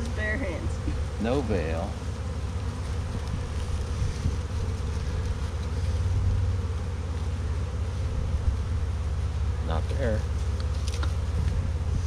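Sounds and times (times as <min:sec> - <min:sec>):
bees buzzing: 0:00.0 - 0:12.0
wind rumble on microphone: 0:03.0 - 0:05.4, 0:06.0 - 0:06.6, 0:11.0 - 0:12.0.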